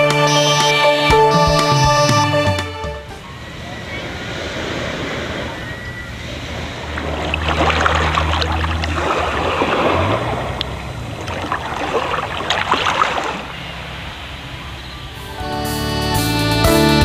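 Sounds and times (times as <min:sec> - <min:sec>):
waves washing over pebbles: 0:04.0 - 0:14.3.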